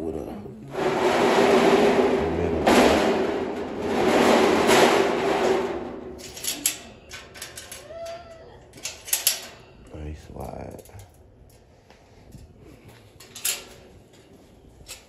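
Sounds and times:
metal tray scraping on runners: 0.7s - 6.4s
metallic clicks and knocks: 8.7s - 9.6s.

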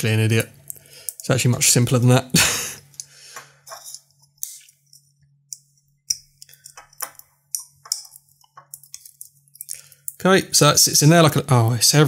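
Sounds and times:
plastic parts clicking and tapping: 5.5s - 10.2s.

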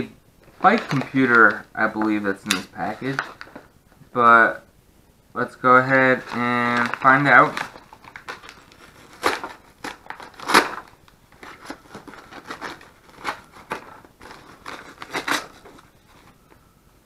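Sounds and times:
paper mailer crinkling and tearing: 0.5s - 3.7s, 5.6s - 16.4s.

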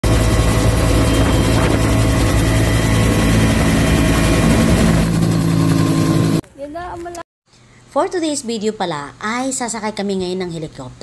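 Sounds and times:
helicopter rotor and engine noise: 0.0s - 6.4s.

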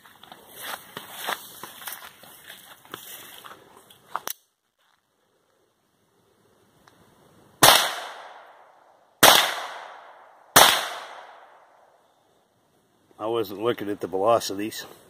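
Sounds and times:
pistol shots: 7.6s - 8.5s, 9.2s - 11.6s.

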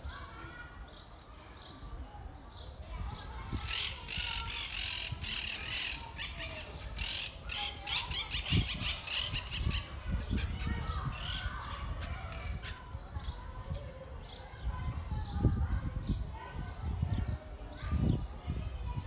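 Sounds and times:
parakeets squawking: 3.6s - 12.9s.

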